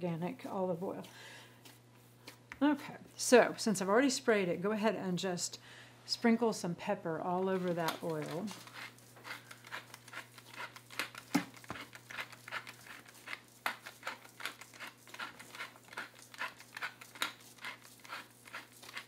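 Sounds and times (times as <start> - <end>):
pepper mill grinding: 7.5 - 19.0.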